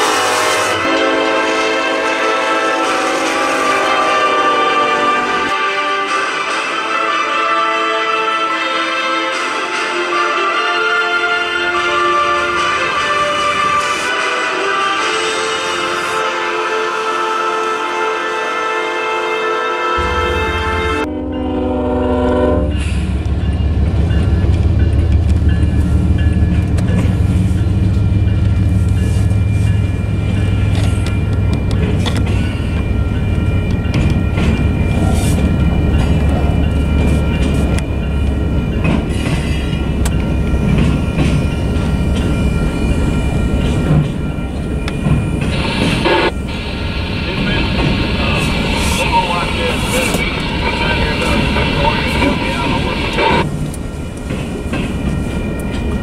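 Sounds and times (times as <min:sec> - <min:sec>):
music: 0:04.4 - 0:21.1
diesel locomotive rumbling past: 0:18.0 - 0:56.0.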